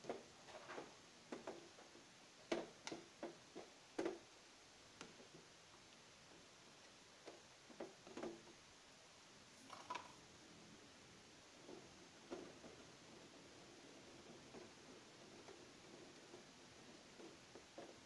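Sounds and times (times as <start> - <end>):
soft taps of batter mixing: 0.0 - 4.3, 5.0 - 8.6, 11.6 - 18.0.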